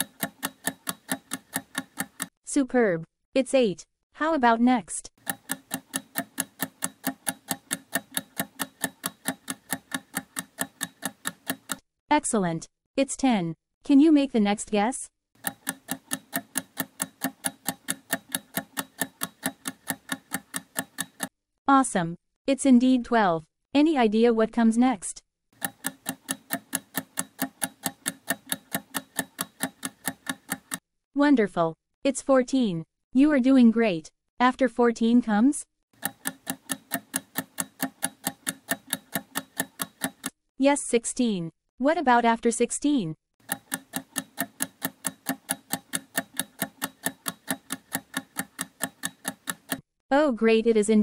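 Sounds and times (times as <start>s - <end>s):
ticking clock: 0.0s - 2.3s, 5.2s - 11.8s, 15.4s - 21.3s, 25.6s - 30.8s, 36.0s - 40.3s, 43.4s - 49.8s.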